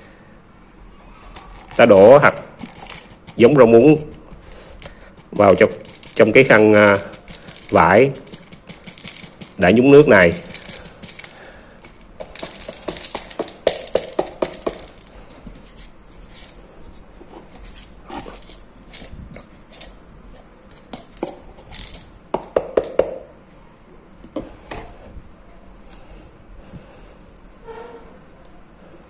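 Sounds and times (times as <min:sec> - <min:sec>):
seeds rattling in plastic tub: 0:01.4 - 0:15.2, 0:21.7 - 0:22.2.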